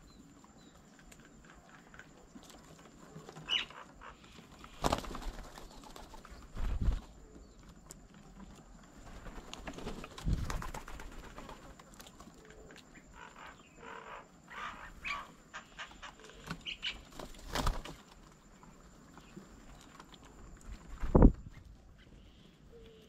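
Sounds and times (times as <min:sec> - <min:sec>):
birds chirping: 0:03.2 - 0:07.7, 0:12.4 - 0:17.3.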